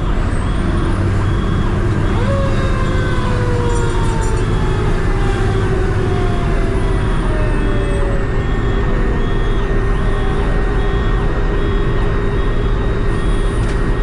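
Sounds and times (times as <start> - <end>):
engine drone: 0.0 - 14.0
fire truck siren: 0.0 - 14.0
road noise: 0.0 - 14.0.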